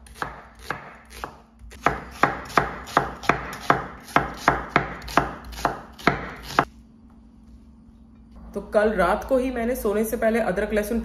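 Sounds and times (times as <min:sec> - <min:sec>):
knife slicing onion: 0:00.0 - 0:06.7.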